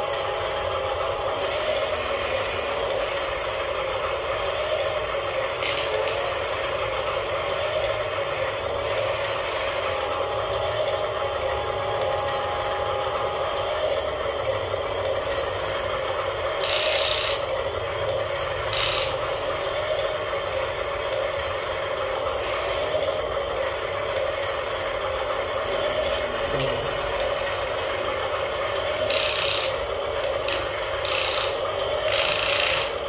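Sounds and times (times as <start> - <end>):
toy excavator motors whirring: 4.5 - 14.4, 15.0 - 24.3, 28.8 - 33.0.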